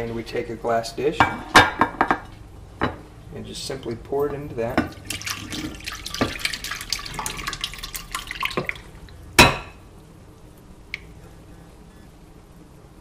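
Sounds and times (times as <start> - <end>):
liquid pouring and splashing: 4.9 - 9.0.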